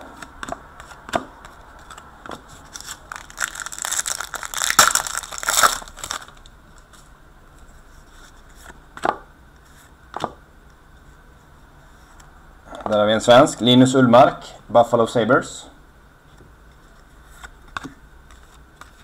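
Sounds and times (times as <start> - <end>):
card wrapper tearing and crinkling: 2.7 - 6.5.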